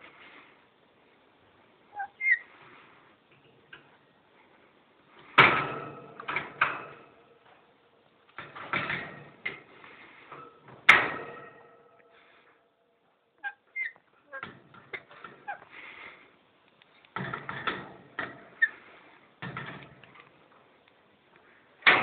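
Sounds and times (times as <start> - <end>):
parrot chirping: 1.9 - 2.5, 13.4 - 14.4
metal birdcage clanging and rattling: 5.4 - 7.2, 8.4 - 9.6, 10.3 - 12.0.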